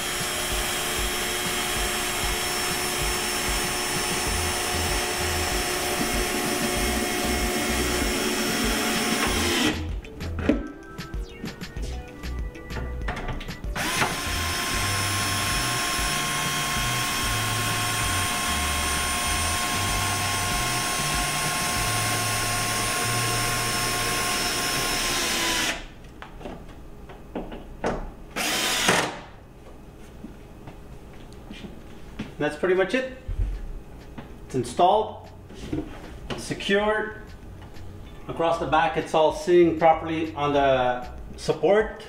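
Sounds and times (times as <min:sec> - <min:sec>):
cordless drill driving a bolt: 0:00.0 - 0:09.9, 0:13.8 - 0:25.9, 0:28.4 - 0:29.2.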